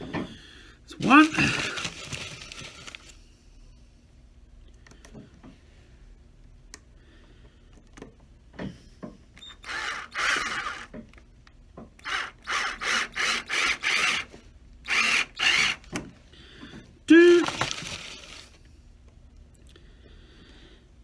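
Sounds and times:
cordless drill whirring: 9.4s - 11.0s, 12.0s - 16.0s.

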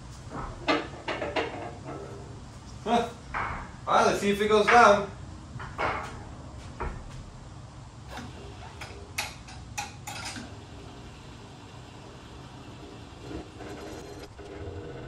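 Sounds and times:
car lift humming: 7.9s - 15.0s.

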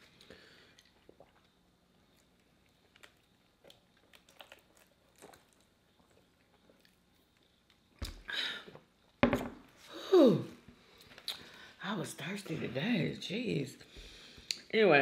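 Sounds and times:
swallowing and sipping: 2.2s - 7.0s.

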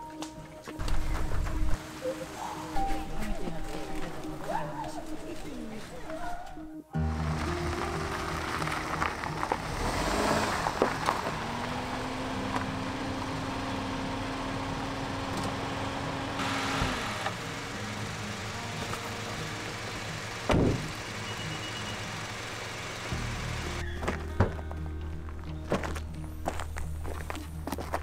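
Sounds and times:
car engine idling: 7.0s - 26.8s
car door shutting: 20.4s - 21.0s.

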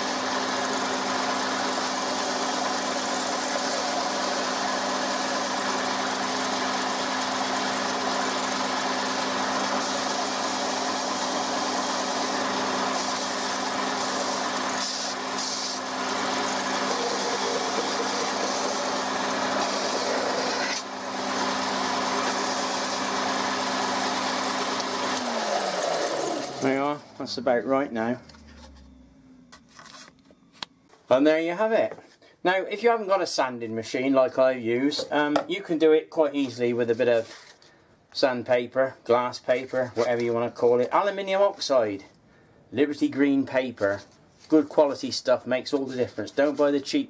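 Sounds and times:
belt sander motor humming: 0.0s - 27.2s
wooden box sanding hiss: 1.6s - 5.6s, 9.7s - 20.8s, 21.6s - 23.2s.

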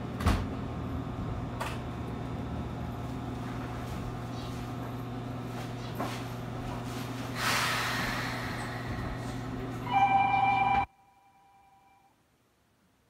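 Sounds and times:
loud hiss: 7.4s - 9.0s
electric train humming: 7.4s - 12.0s
two-pitch electronic tone: 9.9s - 12.1s.

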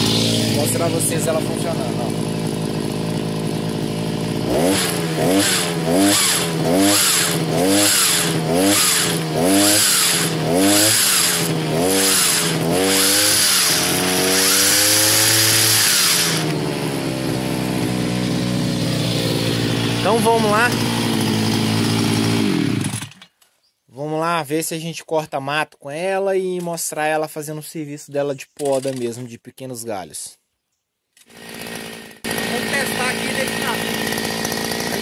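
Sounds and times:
two-stroke engine revving: 0.0s - 23.3s, 31.2s - 35.0s.

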